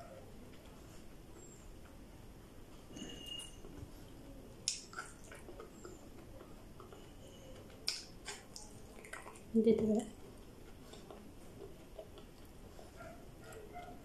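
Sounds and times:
person chewing: 4.6 - 7.0, 7.6 - 9.5.

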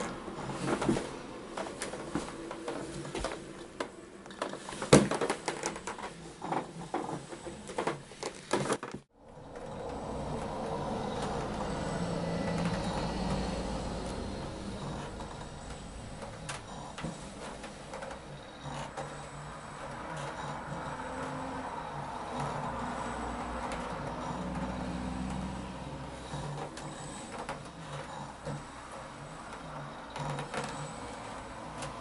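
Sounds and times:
low hum: 9.1 - 18.5.

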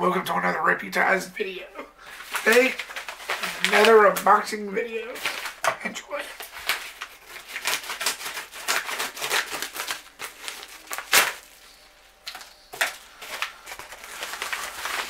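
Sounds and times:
paper crinkling and rustling: 2.1 - 15.0
envelope ripping: 2.2 - 4.3, 6.3 - 15.0.

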